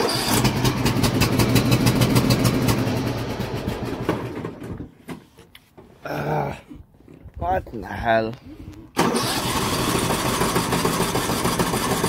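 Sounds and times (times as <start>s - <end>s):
mower engine cranking on starter: 0.0s - 4.8s, 9.0s - 12.0s.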